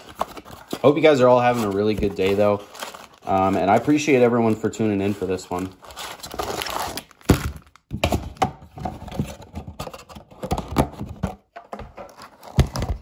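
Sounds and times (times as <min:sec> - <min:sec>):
packs rustling: 0:00.0 - 0:07.8.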